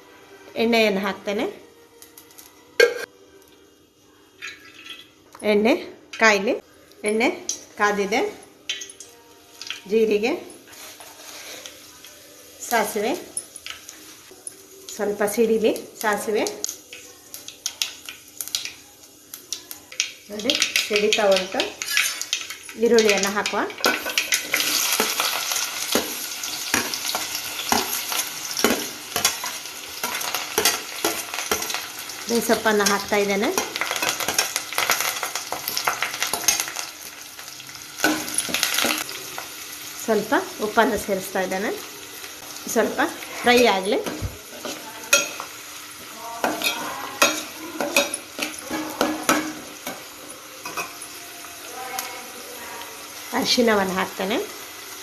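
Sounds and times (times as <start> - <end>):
onions sizzling in hot oil: 7.0 - 55.0
metal spoon scraping and clinking: 46.4 - 50.0.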